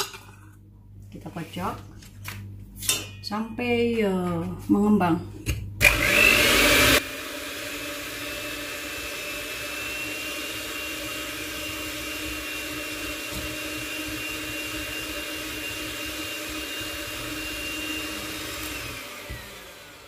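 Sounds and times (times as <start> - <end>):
electric mixer running: 5.8 - 20.0.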